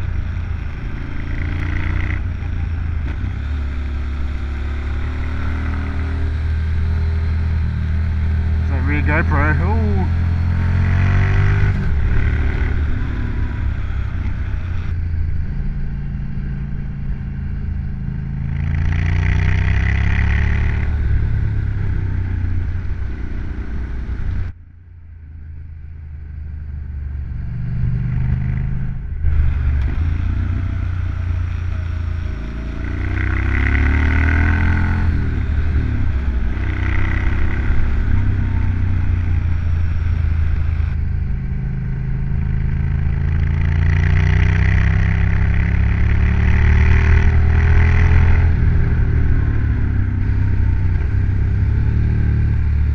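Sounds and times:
motorcycle engine revving: 0.0s - 24.6s, 26.2s - 52.9s
road noise: 0.0s - 52.9s.

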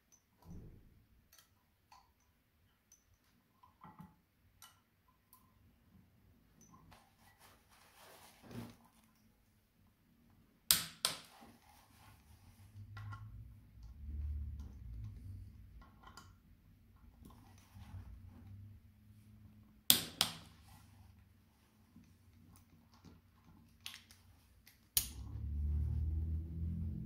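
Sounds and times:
low rumble: 25.1s - 27.0s.

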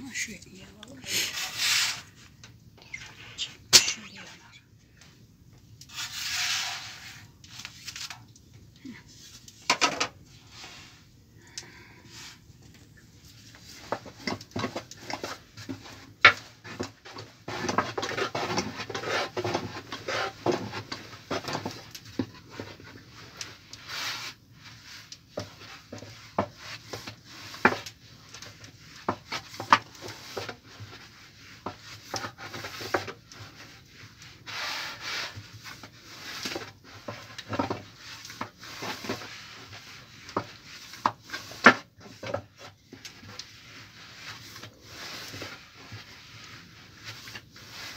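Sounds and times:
rolling pin rubbing dough: 13.7s - 21.8s, 22.5s - 47.9s.

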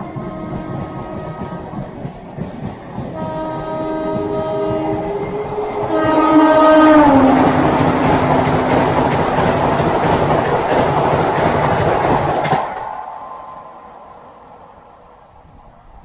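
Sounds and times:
train horn: 0.0s - 2.0s, 3.1s - 9.5s
wheels clacking over rail joints: 0.0s - 13.2s
train passing at high speed: 0.0s - 16.0s.

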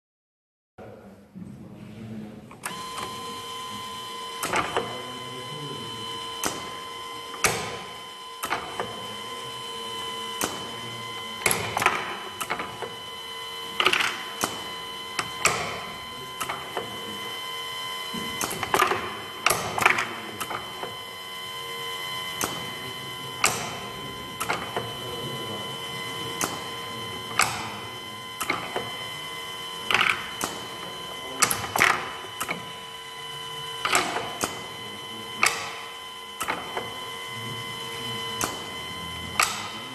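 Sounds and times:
conveyor drive whine: 0.8s - 39.9s
pneumatic cylinders clacking: 2.5s - 5.2s, 5.8s - 39.9s.

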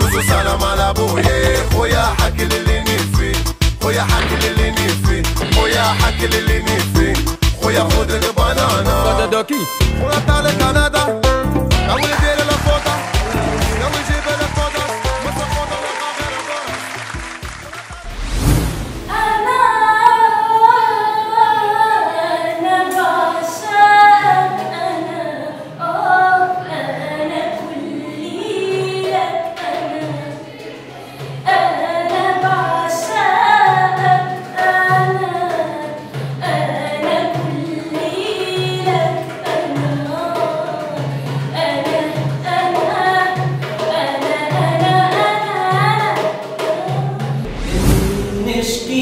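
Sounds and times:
steady low beat: 0.0s - 9.2s, 47.4s - 48.9s
woman singing: 0.0s - 9.6s, 19.1s - 47.4s.

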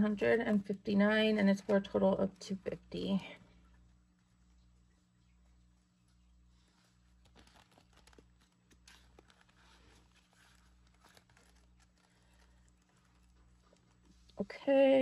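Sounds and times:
low steady hum: 0.0s - 15.0s
plastic pouch and paper rustling: 6.6s - 14.6s.

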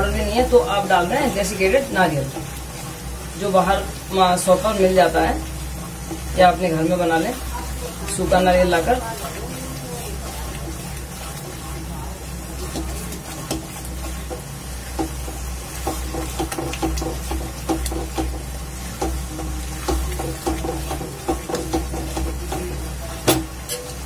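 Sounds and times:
light sizzle: 0.0s - 24.0s
spatula scraping a pan: 3.9s - 24.0s
spatula tapping a pan: 12.5s - 24.0s.

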